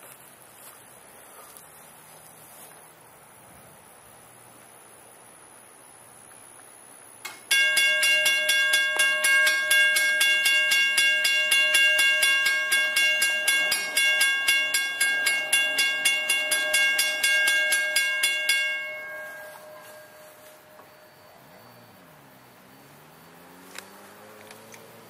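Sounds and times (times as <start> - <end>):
bell ringing rapidly: 7.5 - 21.2.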